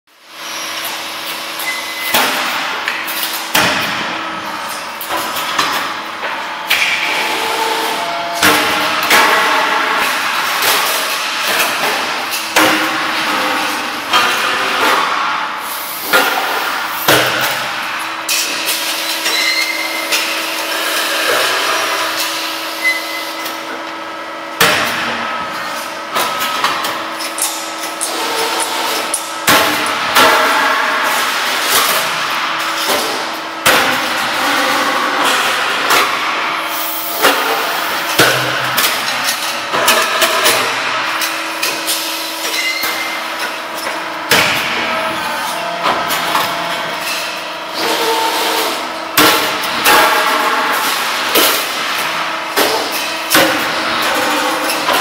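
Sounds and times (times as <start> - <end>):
hydraulic pump hum: 4.1 - 18.2, 40.4 - 54.6.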